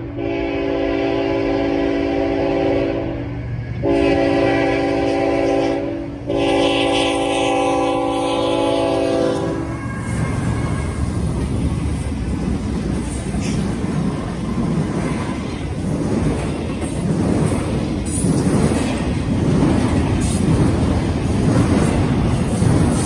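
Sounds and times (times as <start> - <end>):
rumble of passing locomotives: 0.0 - 23.0
locomotive air horn blasts: 0.1 - 11.0.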